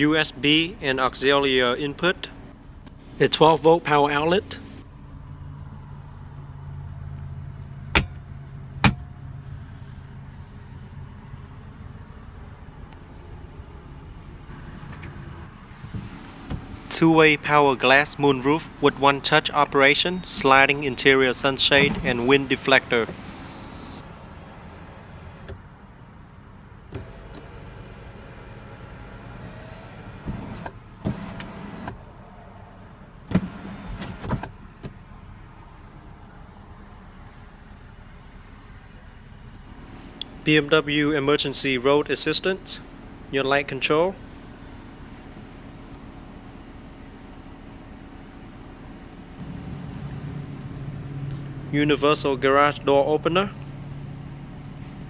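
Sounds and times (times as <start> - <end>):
idling car hum: 0.0 - 55.0
electric motor running: 23.1 - 25.5.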